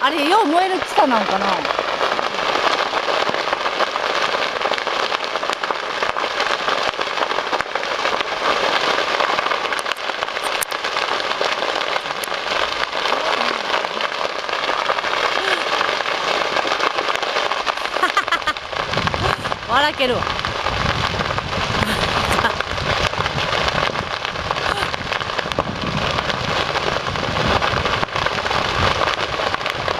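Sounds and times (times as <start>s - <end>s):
brush fire crackling and popping: 0.0s - 29.9s.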